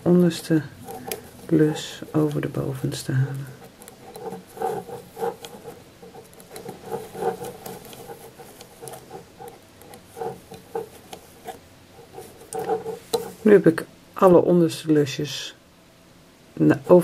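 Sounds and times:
loom hook scraping and clicking: 0.8s - 13.5s.

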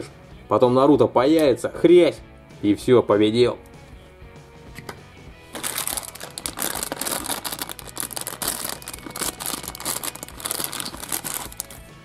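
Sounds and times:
plastic packet crinkling: 5.5s - 11.9s.

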